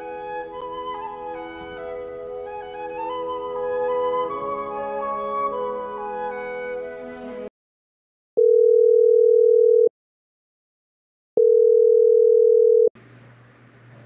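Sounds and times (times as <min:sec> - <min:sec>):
telephone ringback tone: 0:08.4 - 0:09.9, 0:11.4 - 0:12.9.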